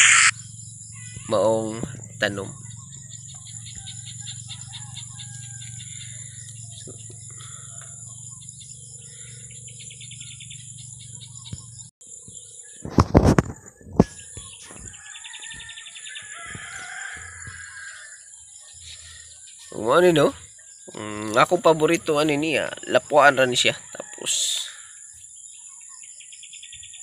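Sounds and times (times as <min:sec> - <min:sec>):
steady high buzz: 0:00.0 - 0:04.5
insects trilling: 0:00.0 - 0:27.0
small birds chirping: 0:00.0 - 0:27.0.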